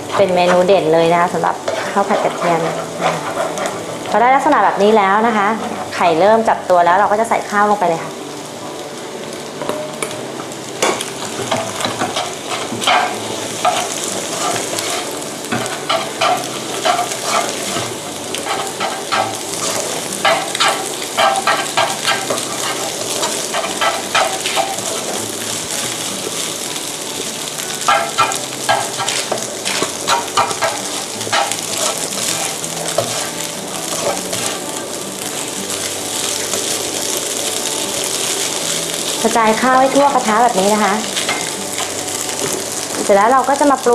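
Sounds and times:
spatula scraping and tapping pan: 0.0s - 4.8s, 10.8s - 25.2s, 27.8s - 34.6s, 39.9s - 43.1s
rice frying in butter: 0.0s - 43.9s.

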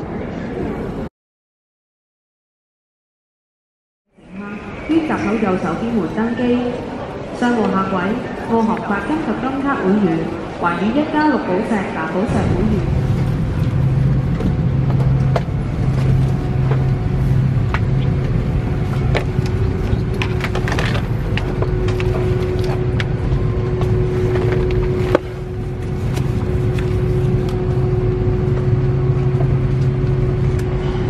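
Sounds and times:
cabin air conditioning drone: 11.8s - 31.0s.

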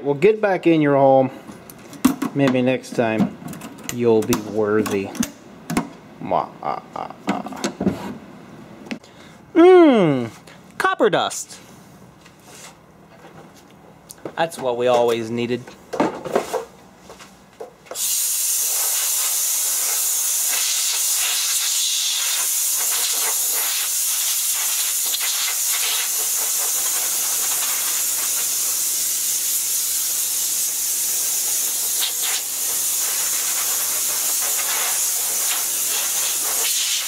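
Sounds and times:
compressed air hissing: 17.9s - 37.0s.

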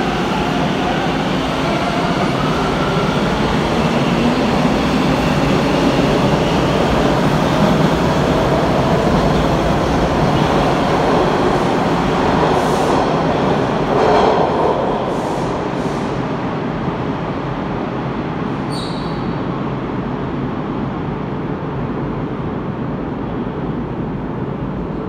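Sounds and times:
train rising whine: 0.0s - 16.6s
subway train rumbling on rails: 0.0s - 25.0s.

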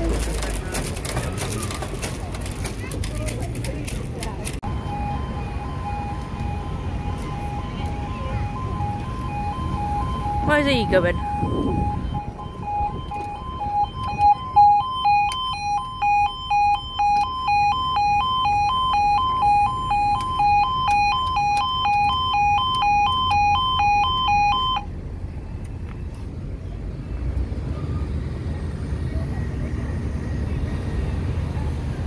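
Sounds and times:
two-tone warning alarm: 4.6s - 24.9s.

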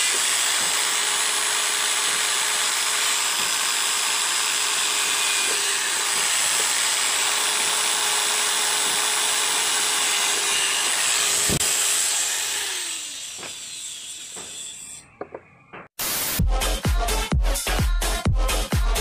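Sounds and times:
electric drill boring into wood: 0.0s - 15.0s.

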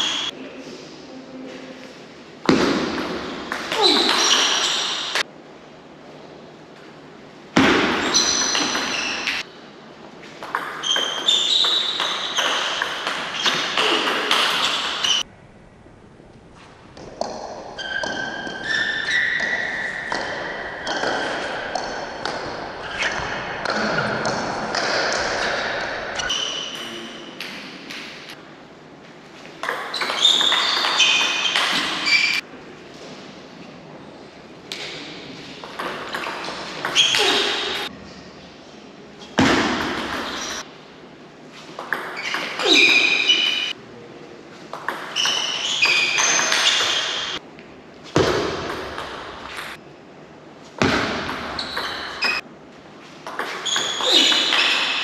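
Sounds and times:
high squeaks: 0.0s - 0.3s, 3.7s - 5.2s, 10.7s - 15.3s, 17.8s - 21.5s, 26.2s - 27.4s, 29.8s - 32.4s, 35.8s - 37.9s, 42.0s - 43.8s, 45.0s - 47.4s, 51.6s - 52.4s, 53.4s - 55.0s
table tennis ball hits: 2.4s - 5.2s, 7.6s - 9.5s, 10.4s - 15.2s, 17.0s - 28.4s, 29.6s - 32.4s, 34.7s - 37.9s, 39.4s - 40.7s, 41.7s - 43.7s, 44.7s - 47.4s, 48.2s - 49.8s, 50.8s - 52.4s, 53.2s - 55.0s
short high squeaks: 10.8s - 15.2s, 29.9s - 32.4s.

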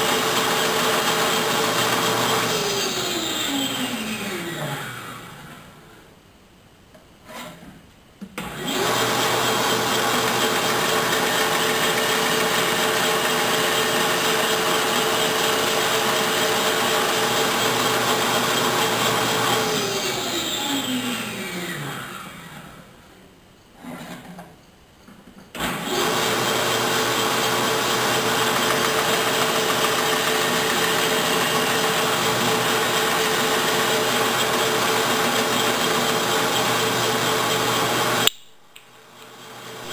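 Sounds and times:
bandsaw cutting wood: 0.0s - 5.4s, 8.4s - 22.7s, 25.6s - 38.3s
bandsaw motor humming: 8.4s - 22.5s, 25.6s - 38.3s.

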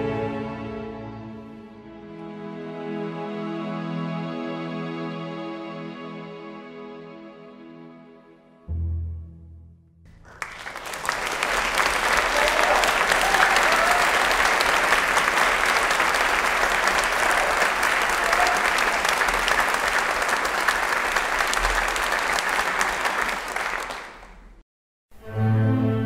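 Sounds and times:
slow bowed string music: 0.0s - 9.8s
audience applauding: 10.1s - 24.6s.

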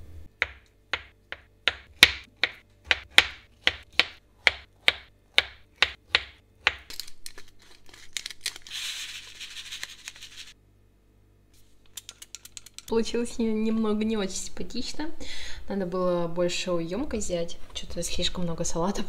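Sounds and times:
knife chopping on cutting board: 0.4s - 6.9s
pepper mill grinding: 6.8s - 10.5s.

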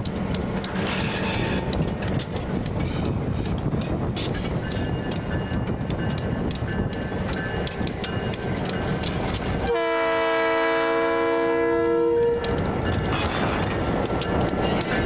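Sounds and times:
wheels clicking over rail joints: 0.0s - 9.8s, 11.6s - 15.0s
diesel locomotive engine rumbling: 0.0s - 15.0s
locomotive horn blast: 9.6s - 12.6s.

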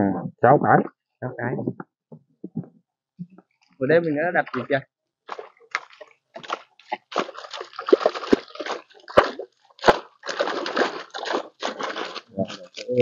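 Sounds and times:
water splashing and sloshing: 4.4s - 13.0s.

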